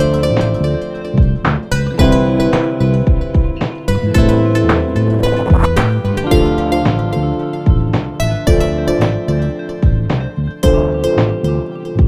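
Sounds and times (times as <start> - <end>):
sustained low bass notes: 0.0 - 9.3
plucked string notes: 0.0 - 12.0.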